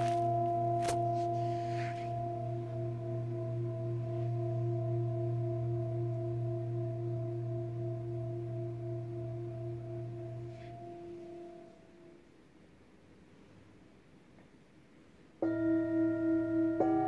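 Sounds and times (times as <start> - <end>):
singing bowl ringing: 0.0 - 12.2, 15.4 - 17.0.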